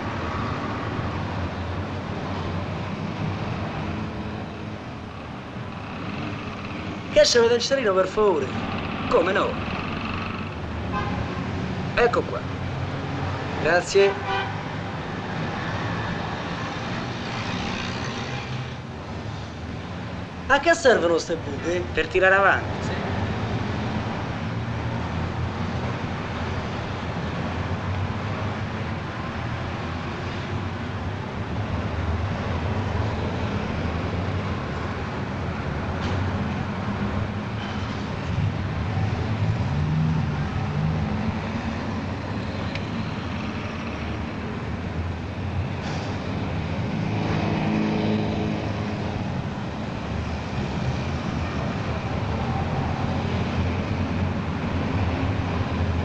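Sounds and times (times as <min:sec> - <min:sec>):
car and bus engines passing: 0:00.0 - 0:56.0
loud engine passing: 0:29.4 - 0:56.0.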